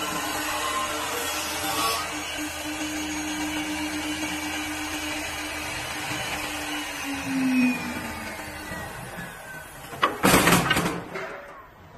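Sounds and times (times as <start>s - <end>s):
wood lathe motor hum: 0.0s - 10.3s.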